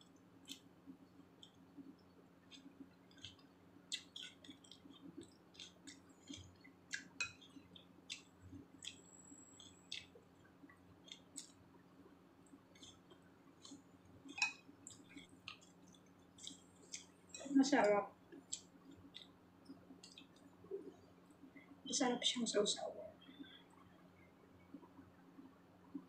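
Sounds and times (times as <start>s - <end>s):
chewing raw vegetables: 1.4s - 11.6s, 12.5s - 17.5s, 18.3s - 21.0s.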